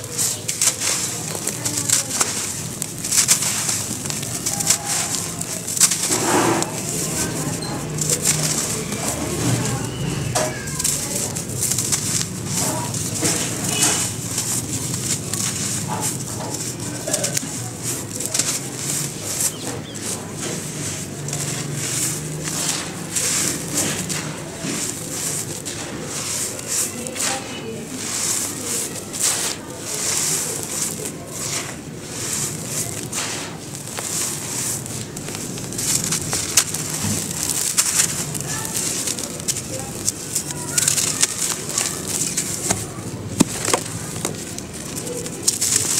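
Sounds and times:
powder pouring: 0.0 - 45.9
sand-cement chunks crunching by hand: 0.0 - 45.9.

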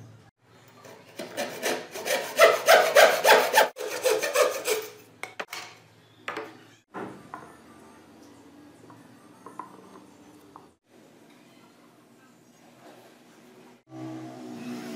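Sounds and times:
hand saw rasping through wood: 1.0 - 5.0.

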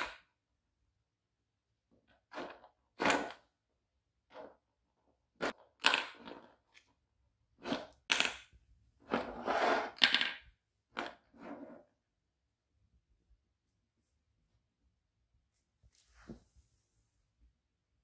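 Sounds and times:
toy snooker balls clacking: 5.4 - 6.9, 7.7 - 8.6, 9.9 - 11.3.

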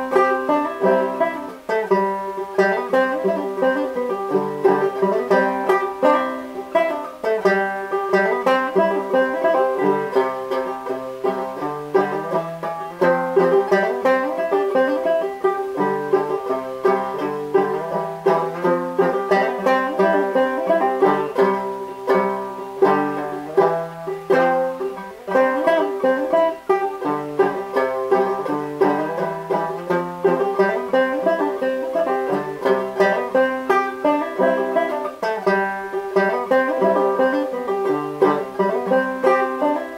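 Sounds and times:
solo banjo tune: 0.0 - 39.9.

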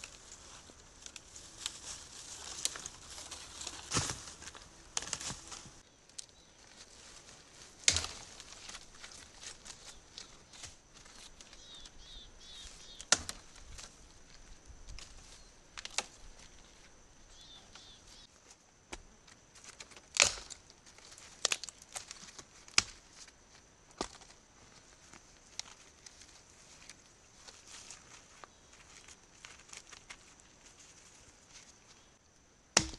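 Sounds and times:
dry branches snapping: 0.0 - 6.9, 7.7 - 12.0, 12.9 - 16.6, 19.6 - 23.3, 23.9 - 24.3.

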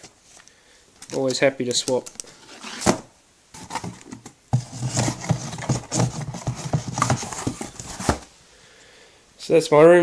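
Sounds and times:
phone handling rubbing and knocking: 3.6 - 8.3.

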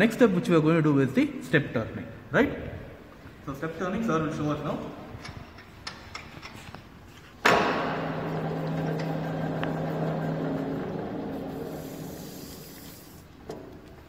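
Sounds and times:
lathe spindle clunk: 7.4 - 11.8
lathe motor humming: 7.7 - 13.2.

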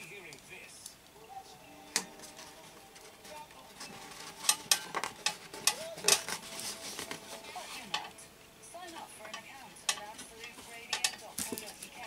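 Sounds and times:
foil tape crinkling: 2.2 - 8.1.

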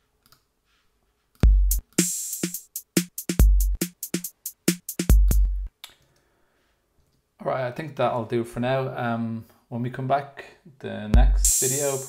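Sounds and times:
drum machine beat: 1.4 - 5.7, 11.2 - 12.0.

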